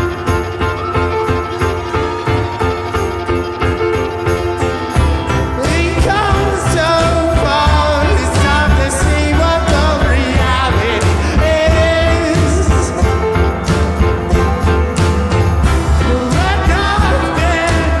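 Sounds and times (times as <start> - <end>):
live band playing: 0.0 - 18.0
person singing: 4.6 - 18.0.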